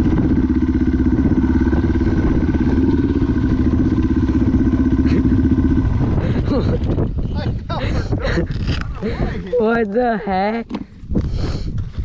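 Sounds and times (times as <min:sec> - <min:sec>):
dirt bike engine running: 0:00.0 - 0:07.3.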